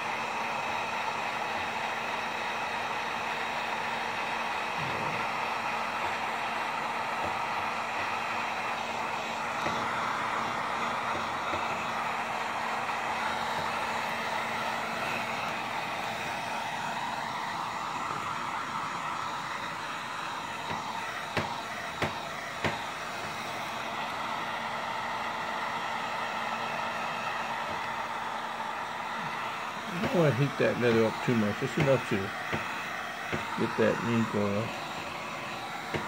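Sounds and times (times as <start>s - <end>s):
heat gun blowing: 0.0s - 36.0s.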